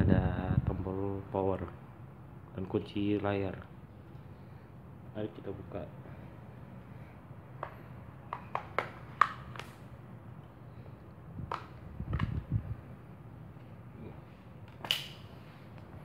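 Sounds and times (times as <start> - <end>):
loud plastic snap: 7.6 - 9.8, 11.4 - 12.4, 14.7 - 15.3
sharp plastic clicks: 11.4 - 12.4, 14.6 - 15.2.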